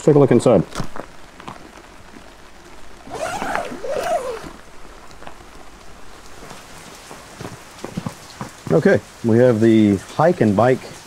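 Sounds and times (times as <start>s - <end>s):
rain pattering on tent fabric: 0.0s - 11.0s
tent zipper pulled open: 3.0s - 4.7s.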